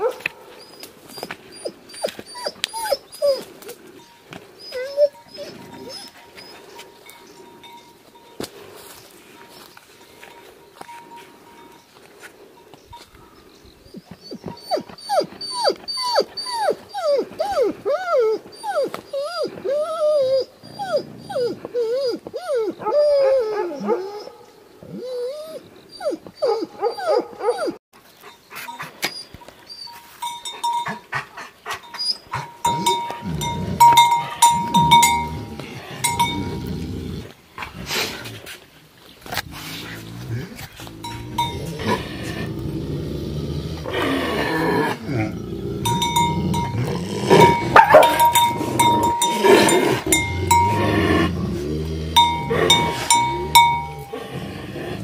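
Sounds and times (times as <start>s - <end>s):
dog whining and yelping: 0.0s - 3.8s, 4.6s - 6.8s, 13.9s - 27.8s, 31.7s - 36.4s, 45.8s - 51.3s, 52.2s - 54.2s
lower rough dog sounds: 30.6s - 38.5s, 39.4s - 55.0s.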